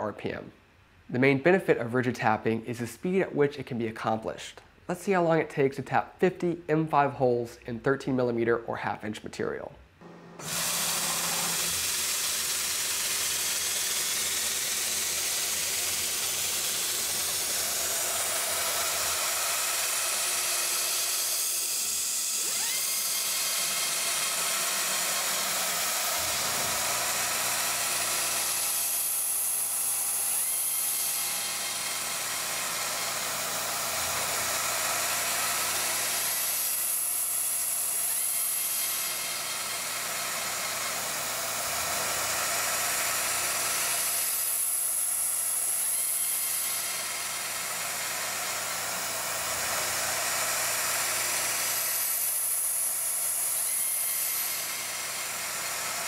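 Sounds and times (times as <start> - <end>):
spindle motor whine: 10.0 - 37.0.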